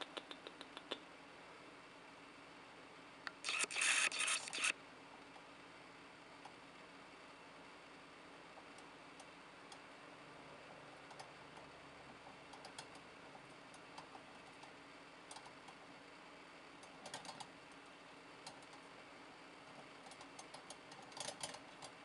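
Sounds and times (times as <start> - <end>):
hamster wheel clicking: 11.1 - 13.1, 13.7 - 15.8, 16.8 - 17.5, 20.0 - 22.0.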